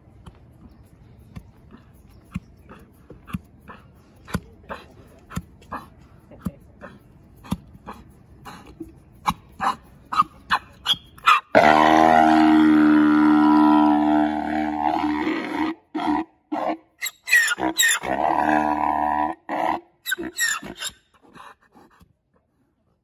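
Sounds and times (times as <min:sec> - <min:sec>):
zebra braying: 0:09.2 - 0:20.9.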